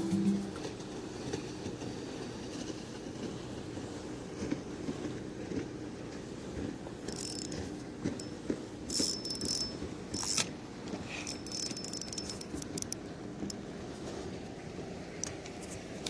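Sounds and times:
reel ticking: 0:07.0 - 0:13.6
fishing reel whirring: 0:07.1 - 0:08.3, 0:08.9 - 0:10.5, 0:11.1 - 0:13.0.

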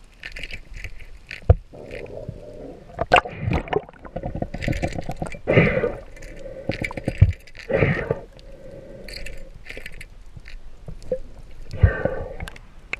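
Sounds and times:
underwater clicks and knocks: 0:03.0 - 0:05.5, 0:06.7 - 0:07.7.

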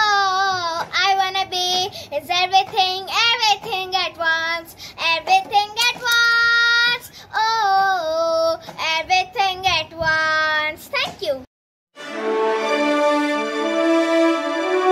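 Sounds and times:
girl singing: 0:00.0 - 0:11.4.

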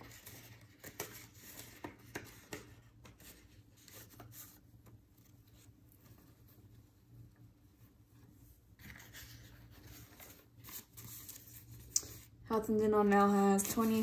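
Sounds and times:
paper bills rustling: 0:13.3 - 0:14.0
sharp paper crackles: 0:13.4 - 0:14.0.

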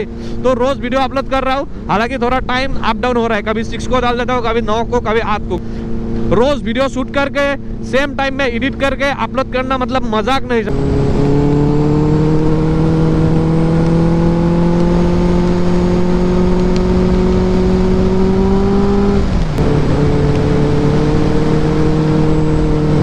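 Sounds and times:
motorcycle engine running: 0:02.2 - 0:23.0
wind noise on microphone: 0:10.7 - 0:23.0.

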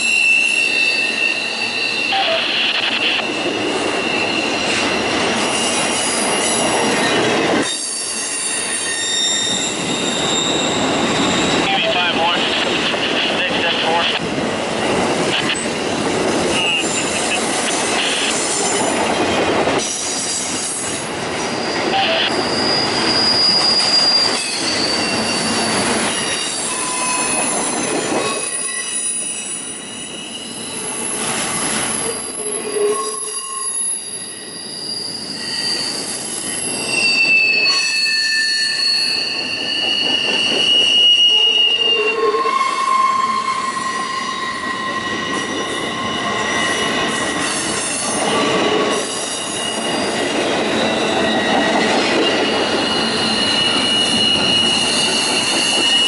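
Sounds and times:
rail wheels squealing: 0:00.0 - 0:14.0, 0:16.4 - 0:56.0
rail cars rolling rumble: 0:00.0 - 0:56.0.

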